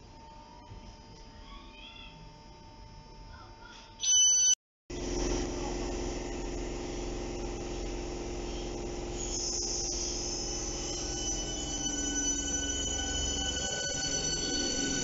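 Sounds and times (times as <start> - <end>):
electric train humming: 4.9 - 15.0
loud electronic beep: 9.1 - 15.0.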